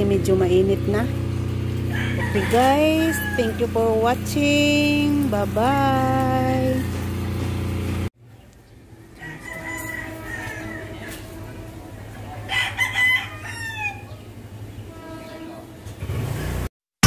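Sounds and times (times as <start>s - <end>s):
rooster crowing: 1.8s - 4.4s, 8.9s - 14.3s.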